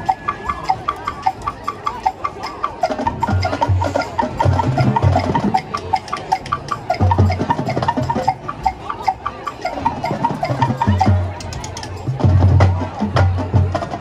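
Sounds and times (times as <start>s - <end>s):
marching band playing: 0.0s - 14.0s
quick mallet percussion notes: 0.0s - 14.0s.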